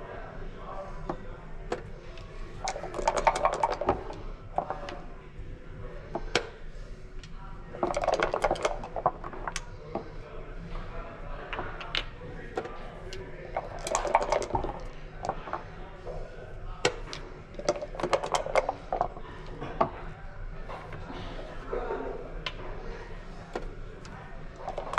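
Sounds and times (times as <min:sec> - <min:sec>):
dice rattling in a cup: 0:02.6 - 0:04.8, 0:07.7 - 0:09.7, 0:13.4 - 0:15.6, 0:16.9 - 0:19.2.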